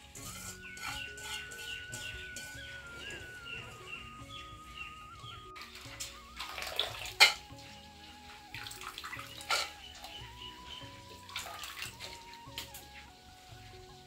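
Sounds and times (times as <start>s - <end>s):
soft background music: 0.0s - 14.0s
water sloshing in a bowl: 5.6s - 10.2s, 11.2s - 12.7s.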